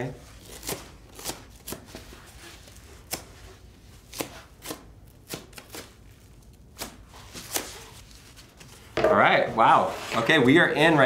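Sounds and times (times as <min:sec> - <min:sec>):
knife snipping fabric: 0:03.0 - 0:03.5, 0:04.1 - 0:05.9.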